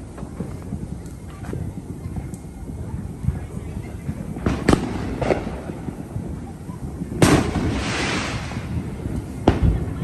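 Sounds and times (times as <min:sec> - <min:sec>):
fireworks bangs: 0:00.0 - 0:10.0
fireworks crackling: 0:00.0 - 0:10.0.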